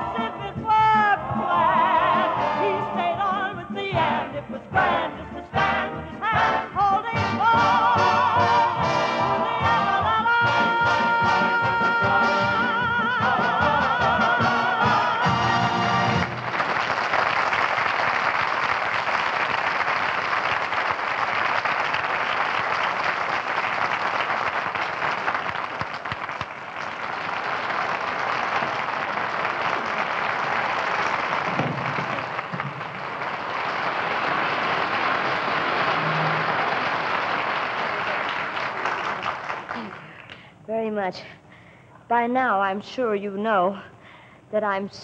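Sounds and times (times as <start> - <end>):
audience applause: 16.0 - 40.2.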